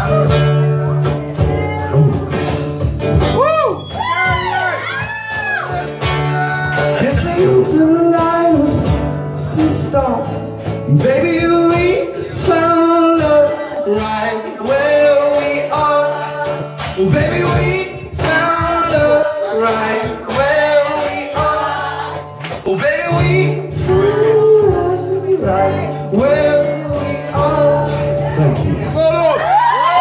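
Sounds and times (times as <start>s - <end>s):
electric guitar: 0.0s - 30.0s
man singing into microphone: 6.2s - 29.5s.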